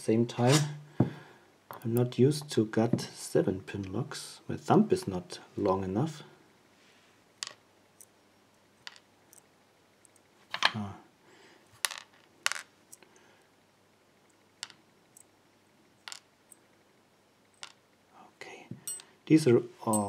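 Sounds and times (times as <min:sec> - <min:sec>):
pins dropping onto plastic tray: 0:07.4 - 0:07.6, 0:08.8 - 0:09.1, 0:11.8 - 0:12.7, 0:16.0 - 0:16.3.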